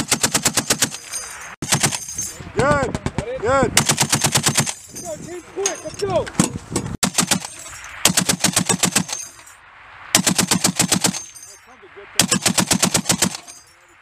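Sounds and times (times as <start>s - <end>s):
heavy machine gun bursts: 0.0s - 2.3s, 3.8s - 4.9s, 7.0s - 9.4s, 10.2s - 11.4s, 12.2s - 13.6s.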